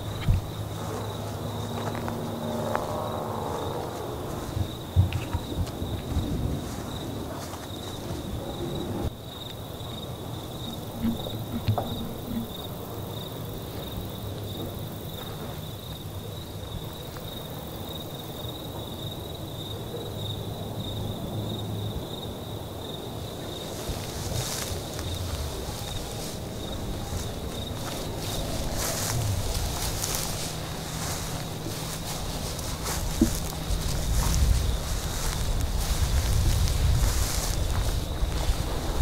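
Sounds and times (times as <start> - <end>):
crickets chirping: 0.0 - 39.0
low outdoor rumble: 10.1 - 17.1, 23.7 - 39.0
rustling: 10.7 - 12.8, 23.6 - 39.0.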